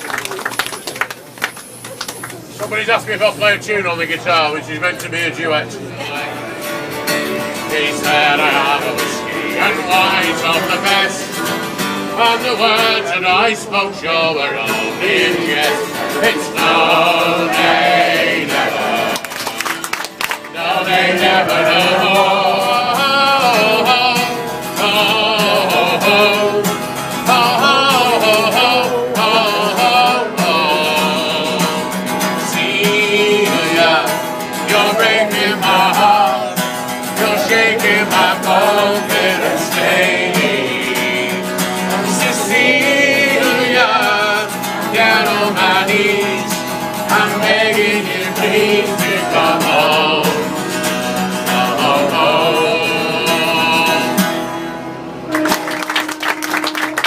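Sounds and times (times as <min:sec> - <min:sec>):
acoustic guitar strummed and picked: 0:01.6 - 0:57.0
person singing: 0:51.4 - 0:54.2.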